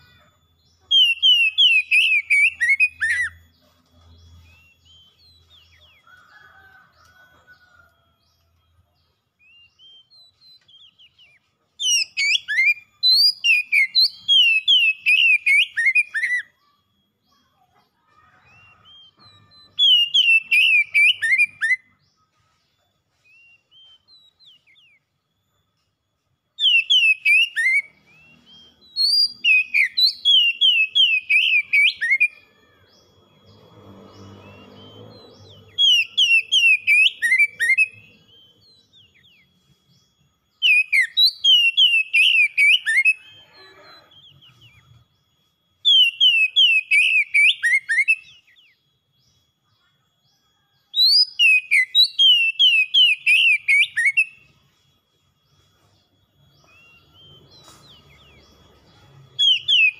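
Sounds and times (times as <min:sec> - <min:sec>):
bird singing whistled phrases: 0:00.0 - 0:03.6, 0:09.4 - 0:16.8, 0:18.5 - 0:21.9, 0:26.6 - 0:32.9, 0:34.1 - 0:45.1, 0:45.8 - 0:49.9, 0:50.5 - 0:54.7, 0:56.4 - 0:59.9.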